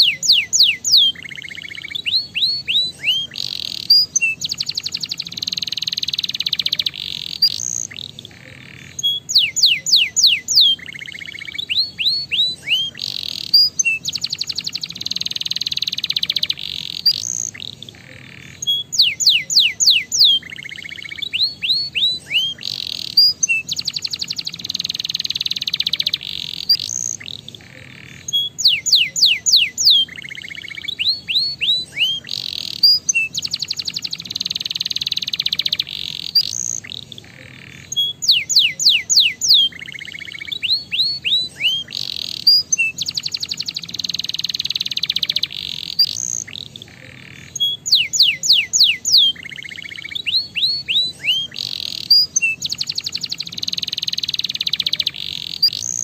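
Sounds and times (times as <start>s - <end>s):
canary singing trills: 0.0s - 56.0s.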